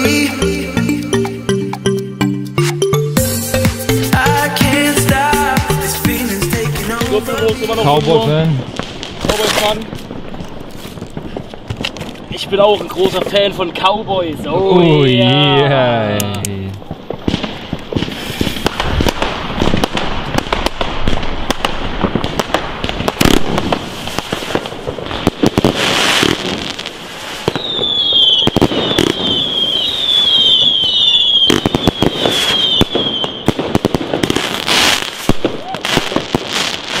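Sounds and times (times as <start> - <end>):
firework launch thumps and bursts: 16.8 - 29.4.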